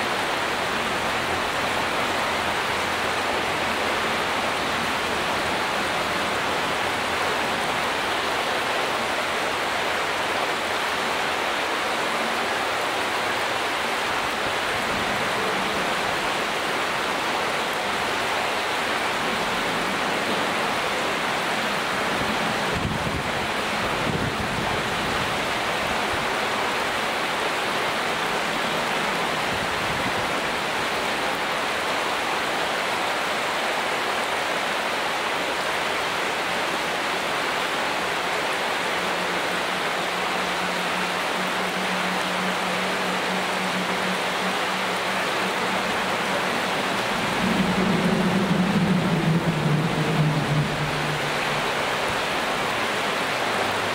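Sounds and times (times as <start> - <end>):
stream water rippling over pebbles: 0.0 - 53.9
low rumble: 41.2 - 53.0.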